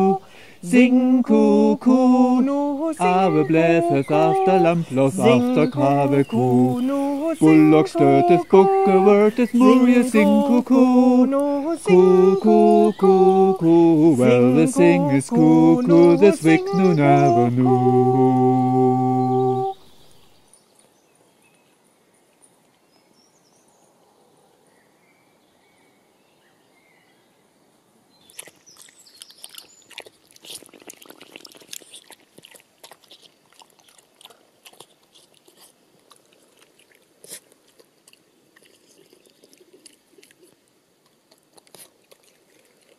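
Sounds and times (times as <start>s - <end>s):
dog crunching and chewing: 28.3s - 42.9s.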